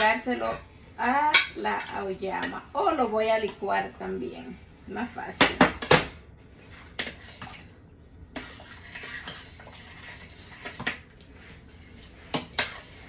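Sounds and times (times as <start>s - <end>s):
spoon stirring beans in pot: 1.2s - 4.2s, 6.6s - 13.0s.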